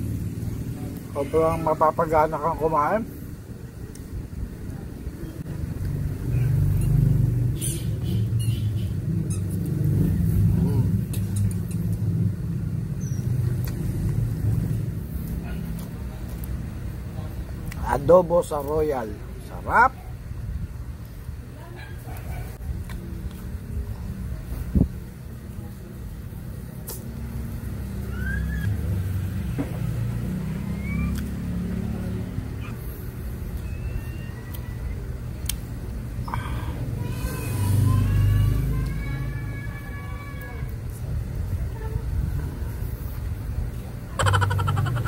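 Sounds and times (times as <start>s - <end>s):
vehicle engine running: 0.0s - 1.4s.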